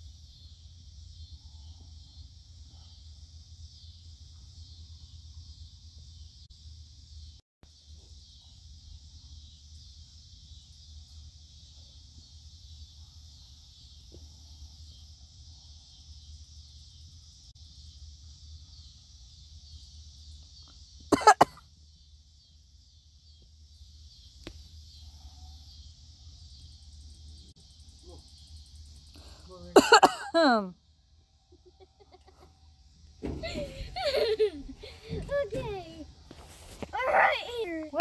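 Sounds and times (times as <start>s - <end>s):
person coughing: 21.1s - 21.6s, 29.8s - 30.6s.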